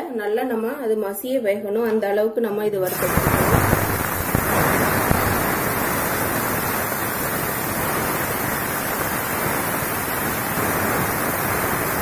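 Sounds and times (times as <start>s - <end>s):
tomatoes sizzling in hot oil: 2.9s - 12.0s.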